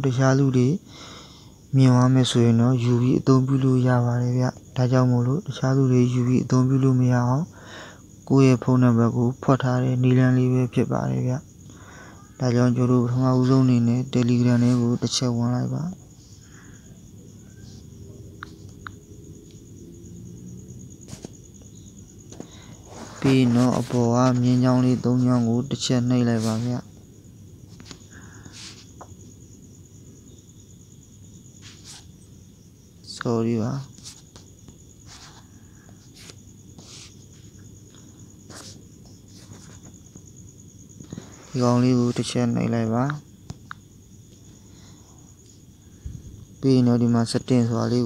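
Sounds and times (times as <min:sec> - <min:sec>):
high pulsing insect trill: 0:00.0 - 0:48.0
short soft hisses: 0:31.6 - 0:32.1.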